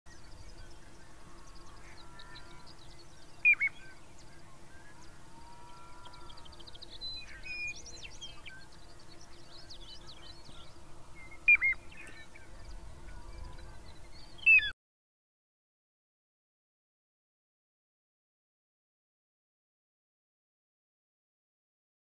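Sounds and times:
birds chirping faintly: 0.1s - 14.8s.

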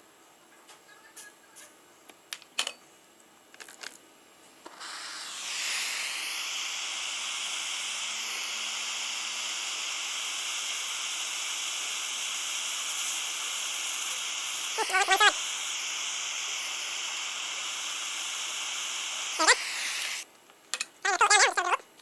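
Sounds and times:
gas torch hissing: 4.5s - 20.3s.

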